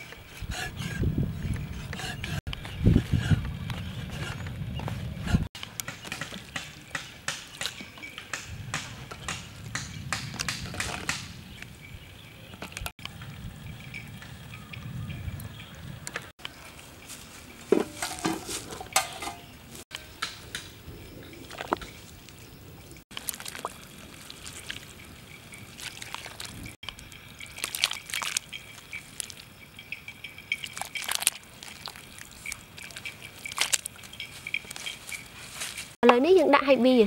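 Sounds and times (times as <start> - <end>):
water drips and splashes: 23.0 - 29.6, 30.4 - 34.8
water sloshing in metal pot: 23.2 - 29.5, 30.5 - 34.8.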